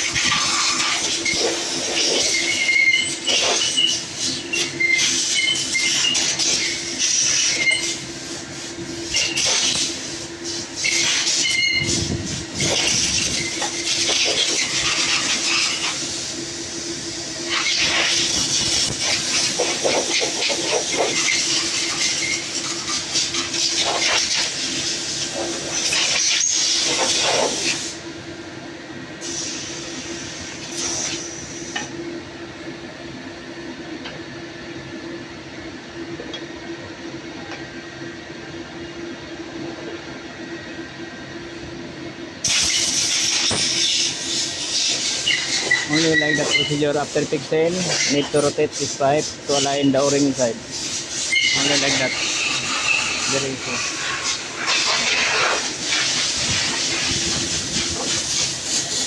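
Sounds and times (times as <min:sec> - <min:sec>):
steady hiss: 0:42.4 - 0:59.0.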